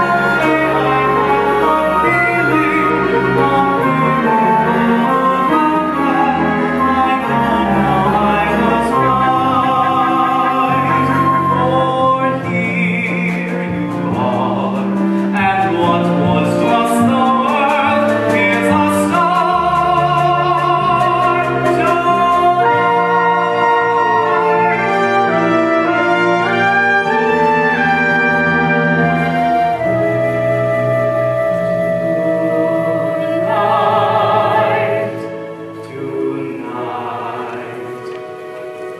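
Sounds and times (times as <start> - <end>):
person singing with vibrato: 0.0 - 23.2, 32.2 - 38.1
orchestra with brass playing: 0.0 - 38.9.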